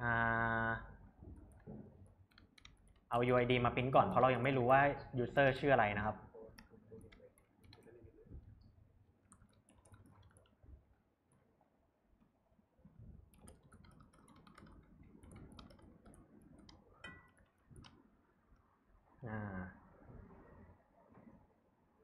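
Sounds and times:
typing on laptop keyboard: 1.4s - 3.5s, 6.4s - 8.0s, 9.2s - 10.8s, 13.2s - 18.0s.

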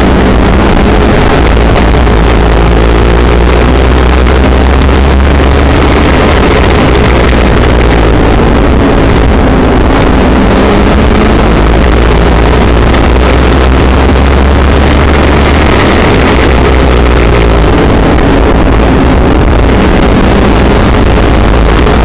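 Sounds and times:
race car engine running hard: 0.0s - 22.0s
wind noise: 0.0s - 22.0s.

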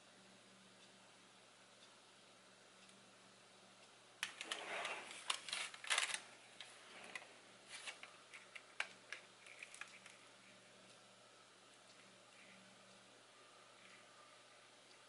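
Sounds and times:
plastic bag crinkling: 4.2s - 6.3s, 8.8s - 10.2s.

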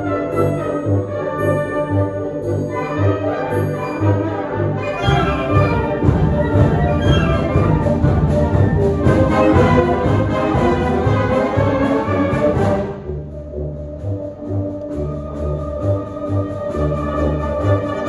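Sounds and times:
brass chords: 0.0s - 18.0s
concert band playing: 4.8s - 12.8s.

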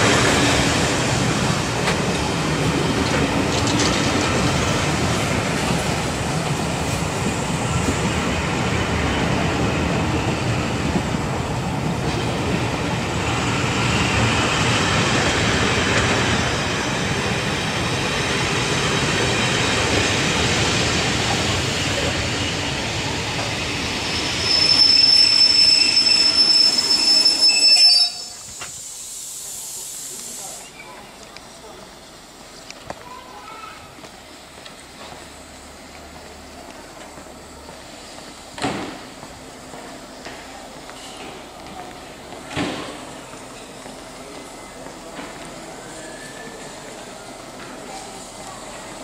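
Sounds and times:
train wheels rumbling on rail: 0.0s - 49.0s
wheel and brake squeal: 24.1s - 28.5s.

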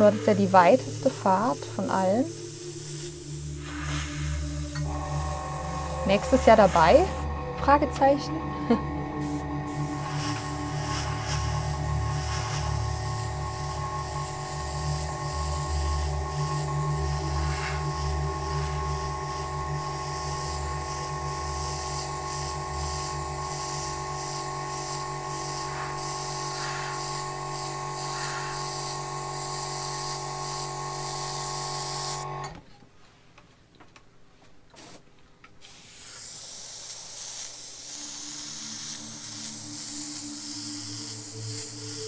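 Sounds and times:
steady hum: 0.0s - 31.2s
airbrush spraying hiss: 0.0s - 32.2s, 34.8s - 35.0s, 35.6s - 42.0s.

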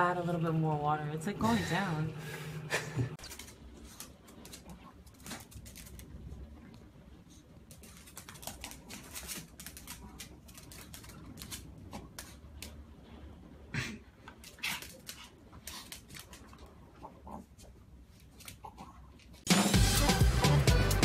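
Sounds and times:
claws scrabbling on tile floor: 3.2s - 6.8s, 7.6s - 12.8s, 14.3s - 19.5s.

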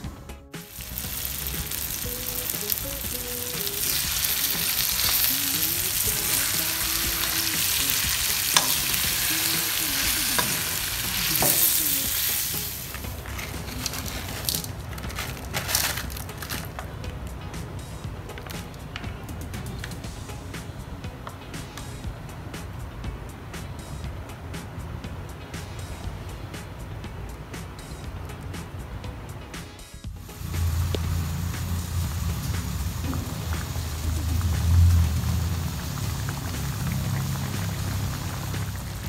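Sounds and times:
chicken sizzling in a pan: 0.7s - 16.7s, 30.2s - 39.0s.

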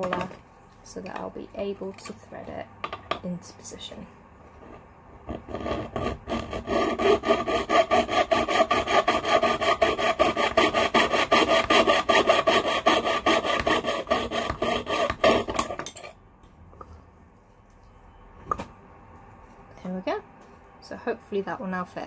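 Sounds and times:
saw rasping through metal: 5.3s - 15.9s.

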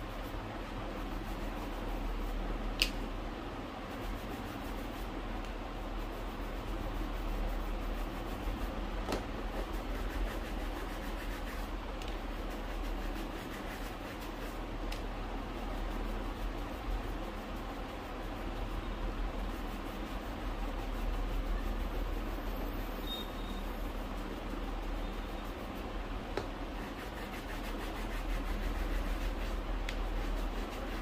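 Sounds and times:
brush scrubbing shoe: 0.0s - 2.6s, 3.8s - 14.8s, 15.4s - 31.0s.

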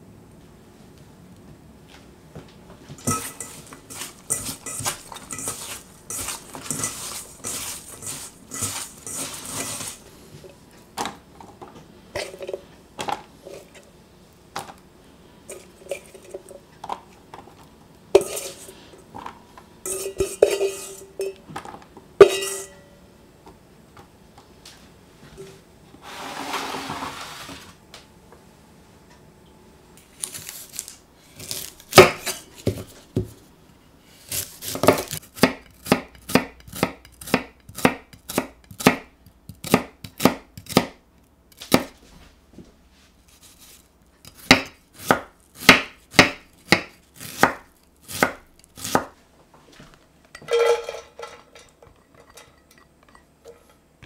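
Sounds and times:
peelings tossed in steel bowl: 3.0s - 10.1s
metal clanks and clinks: 50.4s - 53.8s.

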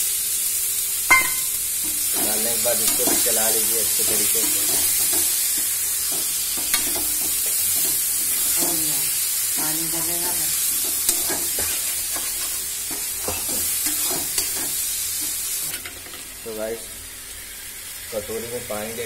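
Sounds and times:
peas sizzling in a metal pan: 0.0s - 19.0s
spatula stirring and scraping: 1.8s - 15.8s.

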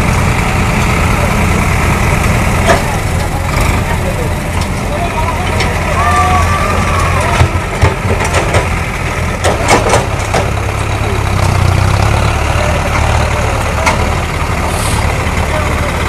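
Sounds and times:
tractor diesel engine idling: 0.0s - 16.0s
sharp knocks and clatters: 7.4s - 10.8s.

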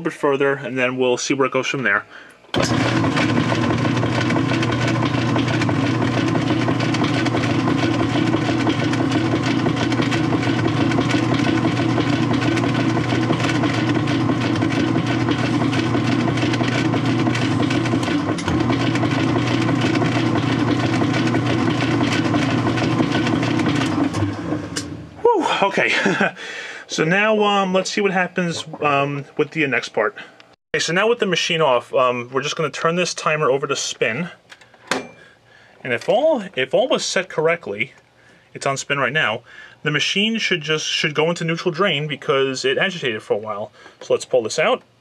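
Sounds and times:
washing machine motor hum: 2.5s - 34.3s
washing machine agitator running: 2.6s - 29.9s.

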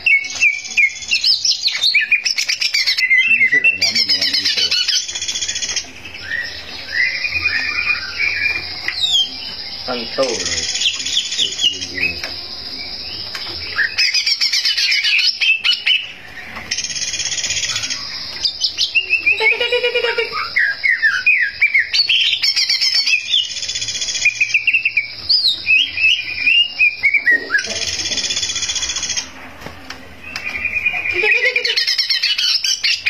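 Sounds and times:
bird singing chirps and whistles: 0.0s - 29.4s, 30.2s - 33.0s.

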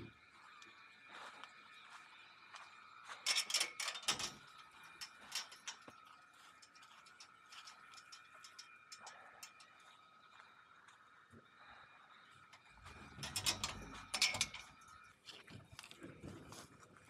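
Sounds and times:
mesh door clicking and rattling: 3.3s - 6.0s, 12.6s - 15.0s.

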